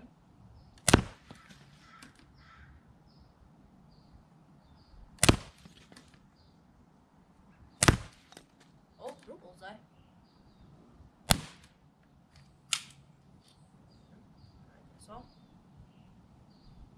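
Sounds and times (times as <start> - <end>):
pellet pistol shots: 0.8 - 1.6, 5.2 - 6.0, 7.8 - 8.5, 11.3 - 11.8, 12.7 - 13.0.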